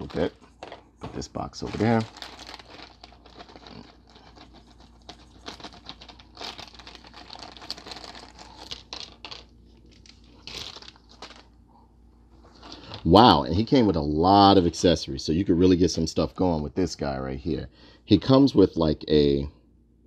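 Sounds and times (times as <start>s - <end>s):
plastic packaging crinkling: 0.0s - 11.6s, 12.3s - 13.8s.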